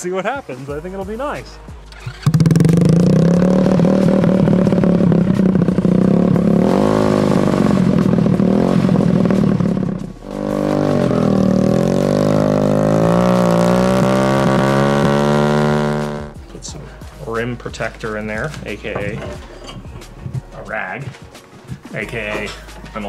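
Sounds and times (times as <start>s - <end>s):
engine running and revving: 1.9s - 16.4s.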